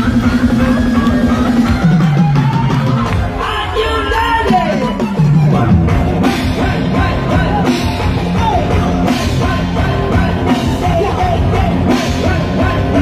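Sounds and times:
drum kit beating: 0:00.0 - 0:13.0
live rock band playing: 0:00.0 - 0:13.0.

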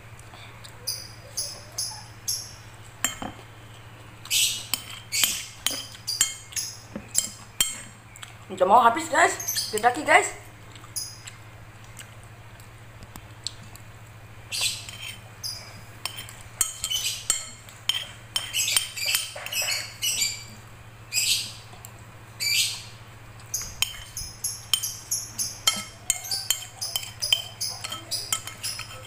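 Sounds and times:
faint steady hum: 0:00.0 - 0:29.0
spoon scraping on ceramic plate: 0:04.7 - 0:07.9, 0:14.6 - 0:20.0, 0:23.6 - 0:29.0.

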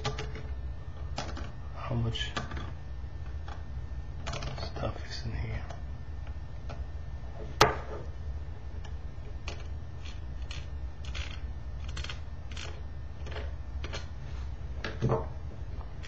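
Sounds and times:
fan thump on wooden table: 0:07.6 - 0:07.9.

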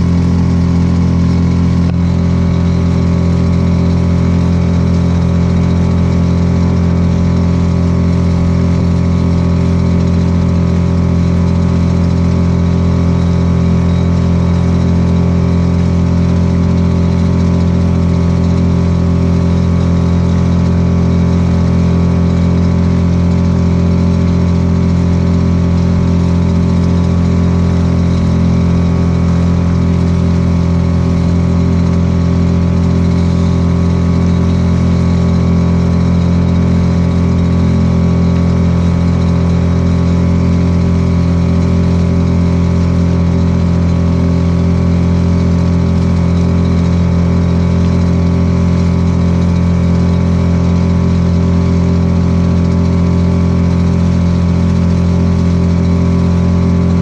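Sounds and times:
small outboard motor running: 0:00.0 - 0:57.0.

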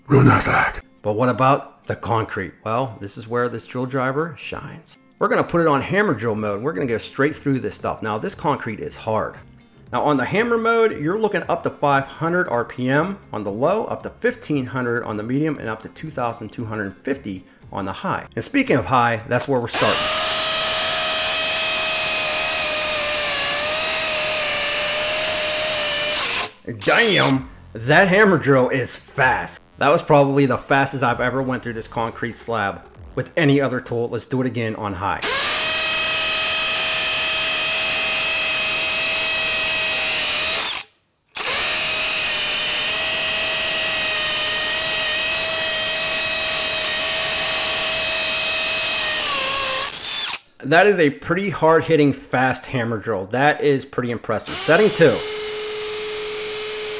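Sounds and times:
hammer drill drilling into concrete: 0:19.7 - 0:27.4, 0:35.2 - 0:50.4, 0:54.5 - 0:56.9.

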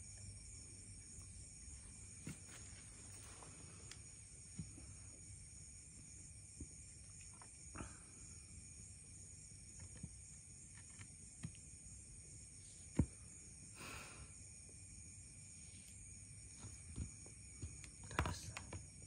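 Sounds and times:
night insects trilling: 0:00.0 - 0:19.0.

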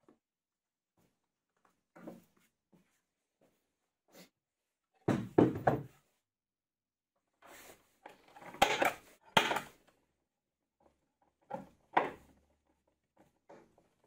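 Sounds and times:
wood knocking on a bench: 0:05.1 - 0:06.0.

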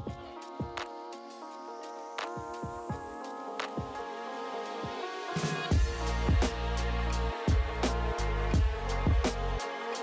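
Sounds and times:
steady drum beat: 0:00.0 - 0:01.0, 0:04.8 - 0:10.0.

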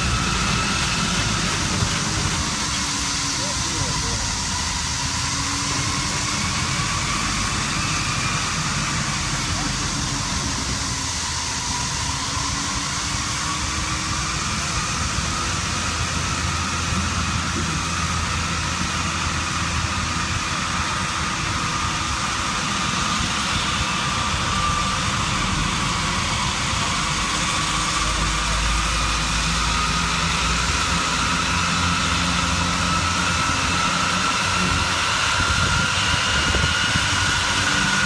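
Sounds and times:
tractor engine running: 0:00.0 - 0:11.8.

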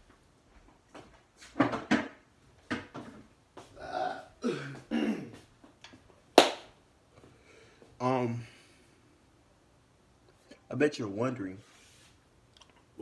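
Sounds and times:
man clearing his throat: 0:03.8 - 0:05.4
man coughing: 0:03.8 - 0:05.4.

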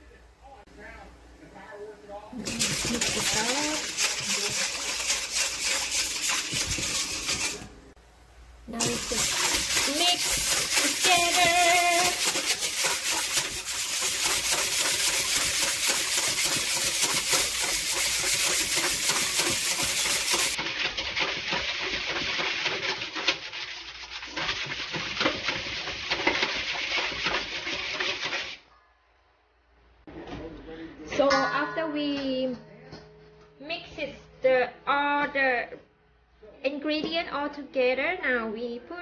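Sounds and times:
whisk scraping metal bowl: 0:02.4 - 0:07.9, 0:08.8 - 0:28.6.

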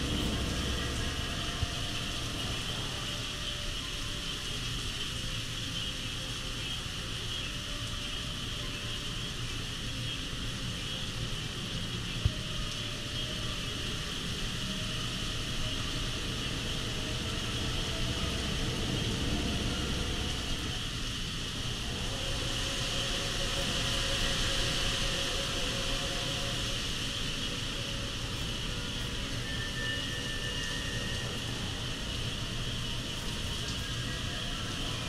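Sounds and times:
strong wind: 0:00.0 - 0:03.5, 0:14.6 - 0:35.0
heavy rain: 0:00.0 - 0:35.0.

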